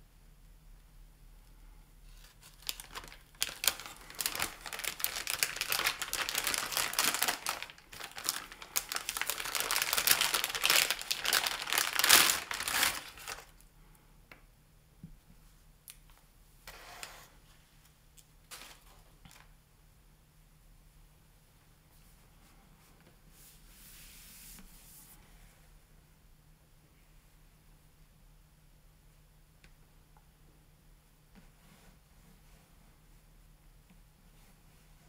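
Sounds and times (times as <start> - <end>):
packaging crinkling and rustling: 2.1 - 13.6, 18.4 - 19.5.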